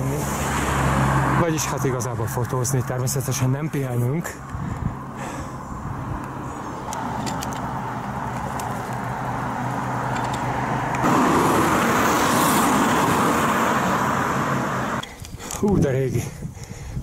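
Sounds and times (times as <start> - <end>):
vehicle engine and tyres passing: 0.0 - 15.0.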